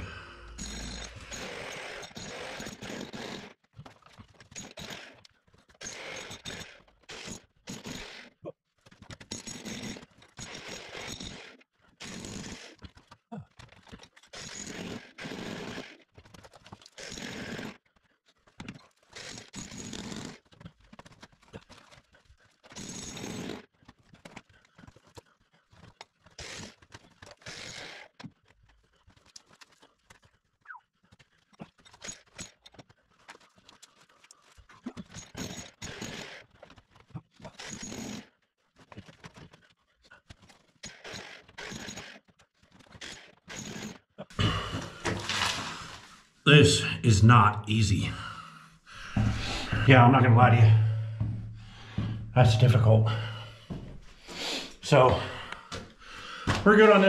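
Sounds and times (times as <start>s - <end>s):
demolition hammer chiselling wall: 0.0s - 46.2s, 47.1s - 57.0s.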